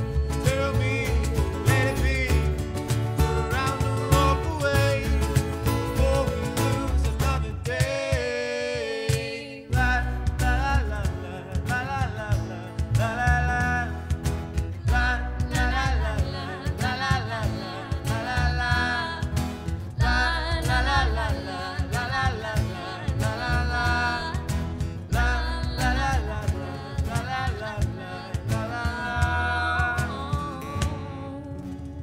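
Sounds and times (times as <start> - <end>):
voices singing in harmony: 0.0 - 2.6, 3.2 - 11.9, 14.8 - 31.4
low beat: 0.0 - 31.2
strummed acoustic guitars: 0.0 - 32.0.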